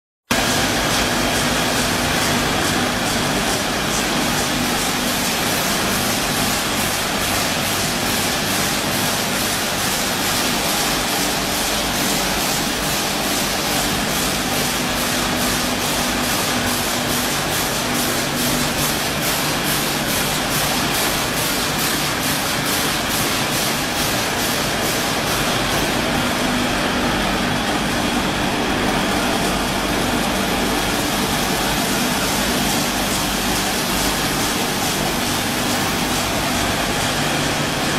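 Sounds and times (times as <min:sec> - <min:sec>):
packing machine running: 0:00.3 - 0:37.9.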